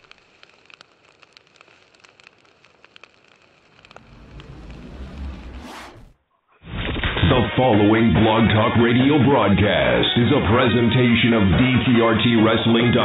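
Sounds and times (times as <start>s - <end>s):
faint hiss: 0.0s - 6.2s
fire crackling and popping: 0.0s - 6.2s
rising whoosh: 3.6s - 6.2s
low rumble: 3.6s - 6.3s
boom: 3.7s - 6.2s.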